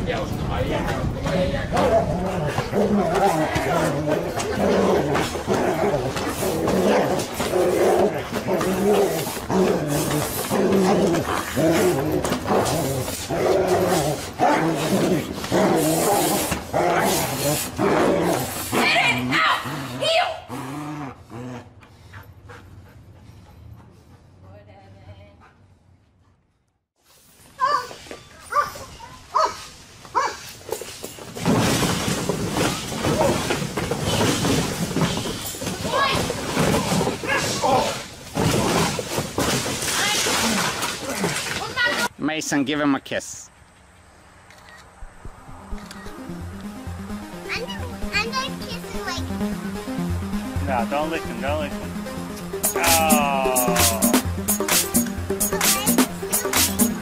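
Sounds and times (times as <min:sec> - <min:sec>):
dog growling: 0:01.3 - 0:21.8
dog barking: 0:30.2 - 0:30.4
cardboard boxes crashing and rustling: 0:31.2 - 0:41.8.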